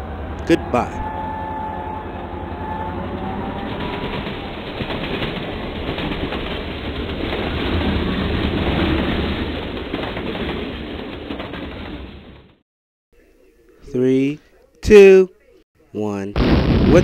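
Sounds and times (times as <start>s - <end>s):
model train wheels rumbling: 3.0s - 12.6s
fast dense track clicking: 3.1s - 12.5s.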